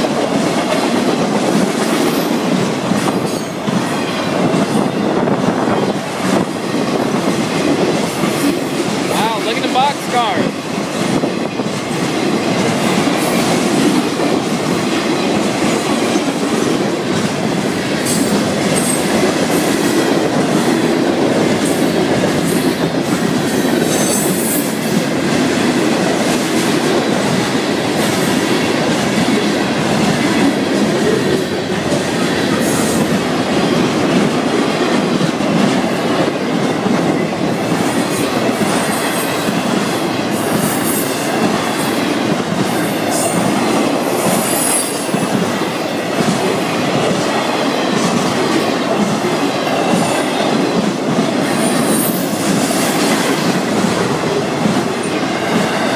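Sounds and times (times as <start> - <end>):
train wheels rumbling on rail: 0.0 - 55.9
train wheels squealing: 51.5 - 52.3.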